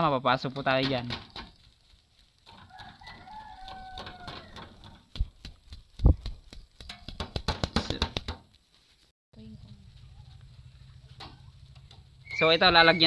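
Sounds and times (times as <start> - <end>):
rooster crowing: 2.5 - 4.9.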